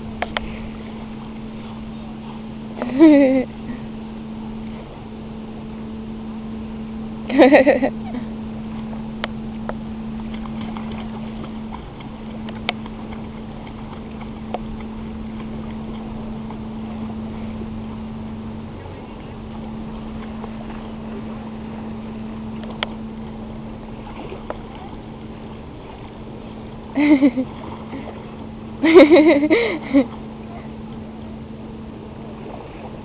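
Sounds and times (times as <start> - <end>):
steady low hum: 0.0 - 33.0
dog paddling splashing water: 10.1 - 28.4.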